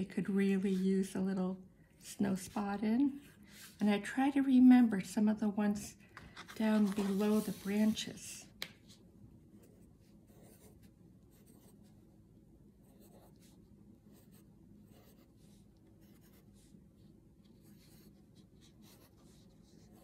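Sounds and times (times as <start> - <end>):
pencil scratching on paper: 6.4 - 8.1, 9.6 - 12.0, 12.8 - 20.0.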